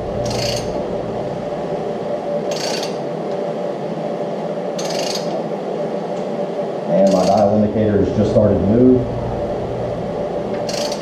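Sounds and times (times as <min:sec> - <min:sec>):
steady background hum: 0:00.0 - 0:11.0
ratchet clicking: 0:00.2 - 0:00.8, 0:02.5 - 0:03.0, 0:04.8 - 0:05.4, 0:07.1 - 0:07.4, 0:10.6 - 0:11.0.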